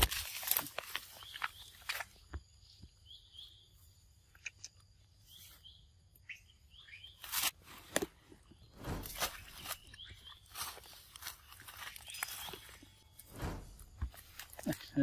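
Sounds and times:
outdoor background: 0:00.0 - 0:15.0
high chirping calls: 0:05.2 - 0:07.3, 0:09.2 - 0:13.1
rustles and knocks: 0:07.9 - 0:10.0.

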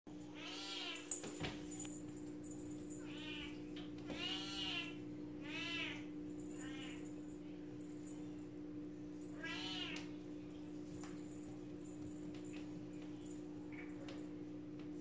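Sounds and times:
steady low hum: 0:00.1 - 0:15.0
kitten meowing: 0:03.0 - 0:06.0, 0:09.4 - 0:10.0.

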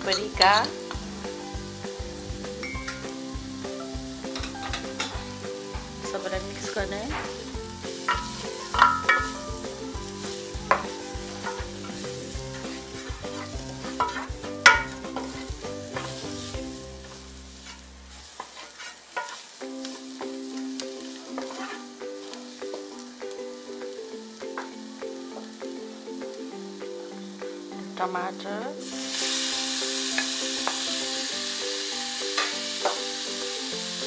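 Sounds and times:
onions sizzling in oil: 0:00.0 - 0:34.0
spatula scraping a pan: 0:07.2 - 0:09.5, 0:10.1 - 0:22.5
spatula knocking against pan: 0:08.1 - 0:09.4, 0:14.0 - 0:15.4.

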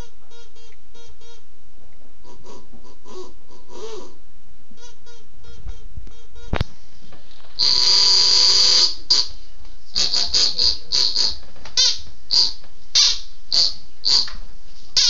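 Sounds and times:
duck call quacks: 0:10.0 - 0:14.3.

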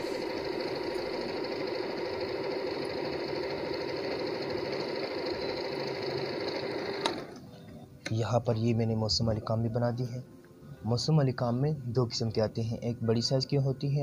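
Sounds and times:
sewing machine stitching: 0:00.0 - 0:07.4.

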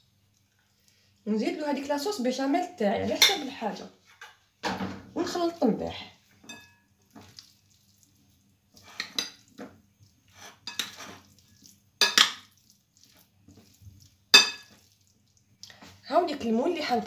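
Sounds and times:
spoon scraping a bowl: 0:08.7 - 0:15.0.

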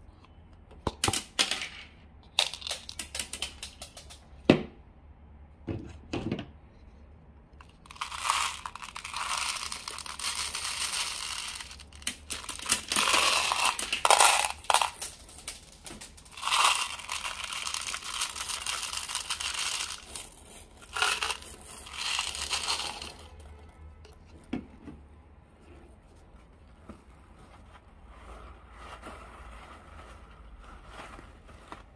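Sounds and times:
water beads pouring into balloon: 0:07.6 - 0:23.4.

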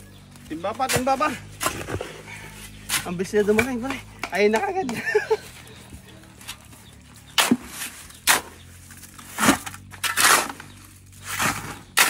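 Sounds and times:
shovel scraping through gravel: 0:07.2 - 0:12.0.

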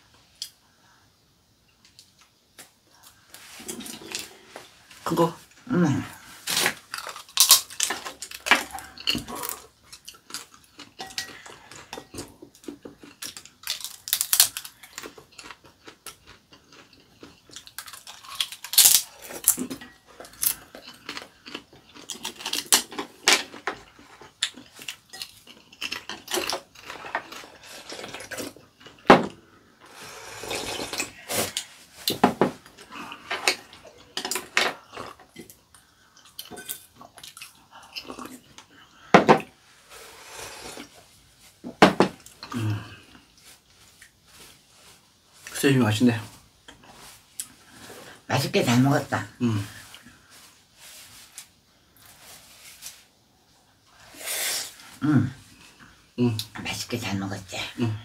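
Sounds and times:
chewing: 0:06.9 - 0:29.1.

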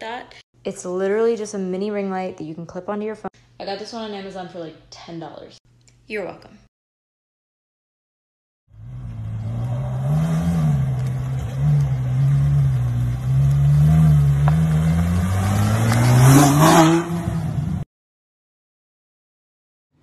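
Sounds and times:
car engine revving: 0:08.7 - 0:17.8.

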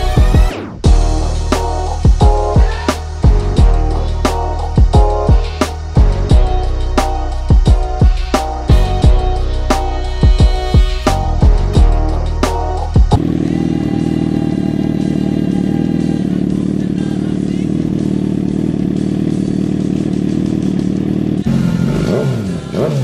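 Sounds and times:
music with drums: 0:00.0 - 0:18.2
engine revving: 0:00.0 - 0:23.0
motorcycle engine idling: 0:00.9 - 0:23.0.

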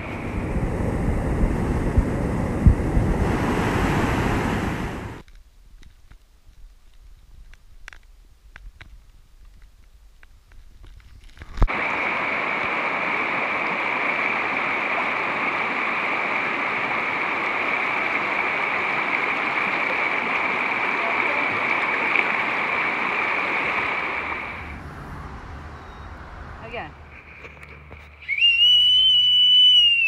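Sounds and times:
stream rushing over rocks: 0:03.0 - 0:05.2, 0:11.7 - 0:25.5.

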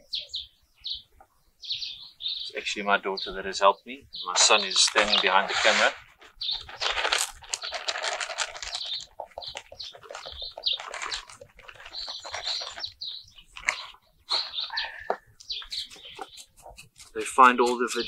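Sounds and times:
birds chirping: 0:00.0 - 0:18.0
plastic bag crinkling: 0:04.4 - 0:14.8
granules pouring into tin pot: 0:06.7 - 0:09.1.

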